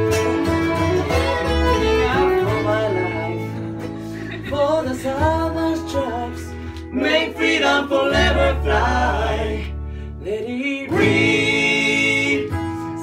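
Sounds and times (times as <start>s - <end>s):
mandolin: 0.0s - 9.7s
acoustic guitar: 0.0s - 13.0s
people singing together: 6.9s - 9.8s, 10.8s - 12.8s.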